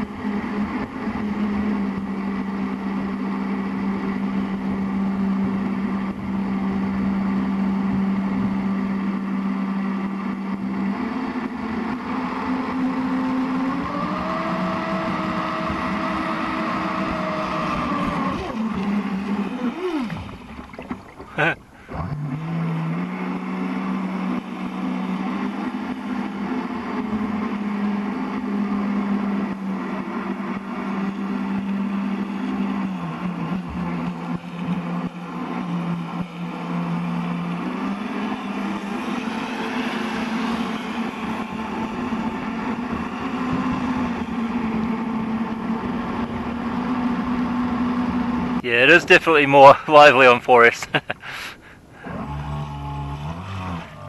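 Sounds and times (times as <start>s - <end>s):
electric motor whine: 52.0s - 54.0s.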